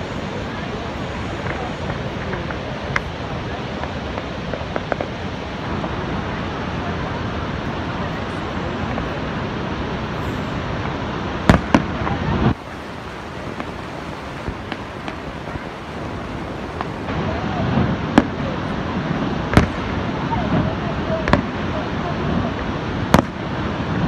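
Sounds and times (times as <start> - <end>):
distant fireworks bangs: 0.0 - 24.0
faint fireworks pops: 0.0 - 24.0
steady rushing background noise: 0.0 - 24.0.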